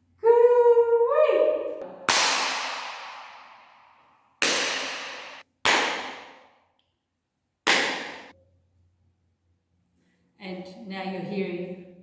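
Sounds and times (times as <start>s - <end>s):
sharp hand claps with reverb: 2.0s - 6.5s, 7.7s - 8.3s.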